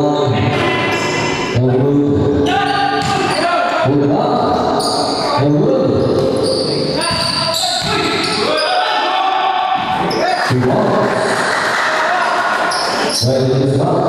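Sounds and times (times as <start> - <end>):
basketball bouncing on court: 2.9 - 3.4, 6.0 - 8.4.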